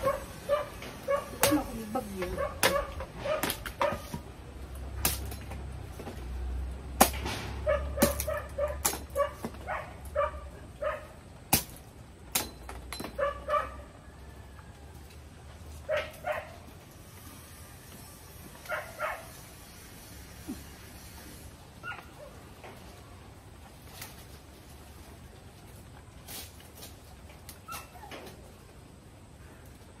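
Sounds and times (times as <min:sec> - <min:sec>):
dog barking: 0:00.0 - 0:01.5, 0:02.3 - 0:04.1, 0:07.6 - 0:11.2, 0:13.2 - 0:13.9, 0:15.9 - 0:16.6, 0:18.7 - 0:19.3.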